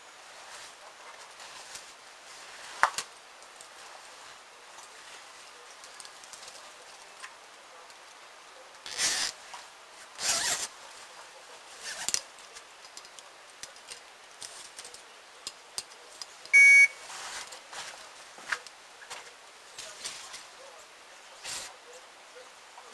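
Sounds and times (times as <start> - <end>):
electronic bite alarm beep: 16.5 - 17.0
scraping rustles: 17.0 - 20.7, 21.3 - 21.8.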